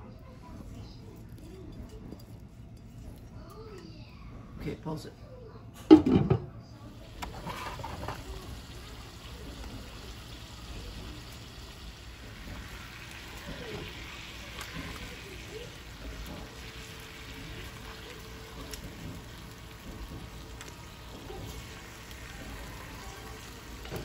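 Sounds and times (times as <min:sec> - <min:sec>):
meat sizzling in oil: 0:07.0 - 0:24.0.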